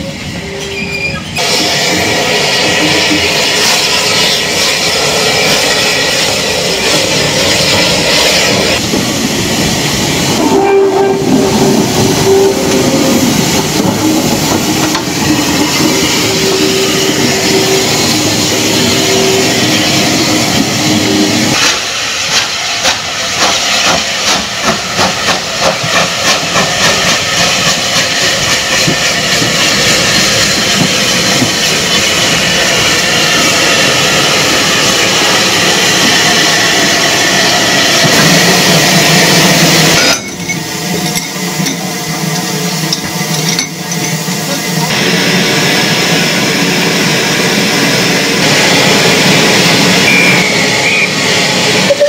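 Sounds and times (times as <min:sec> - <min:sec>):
steam locomotive hissing steam: 0:00.0 - 0:52.0
steam exhaust beats: 0:01.2 - 0:52.0
held tone: 0:50.0 - 0:52.0.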